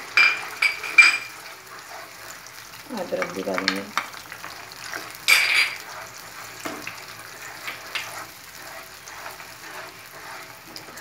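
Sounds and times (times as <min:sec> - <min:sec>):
spatula scraping a pan: 0:00.0 - 0:02.8, 0:04.4 - 0:11.0
light sizzle: 0:00.0 - 0:11.0
dishware clattering: 0:00.2 - 0:01.3, 0:05.3 - 0:05.8.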